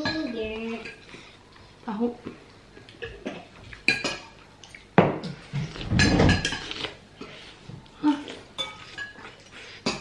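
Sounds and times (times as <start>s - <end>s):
cutlery clinking on ceramic bowl: 6.0s - 6.8s.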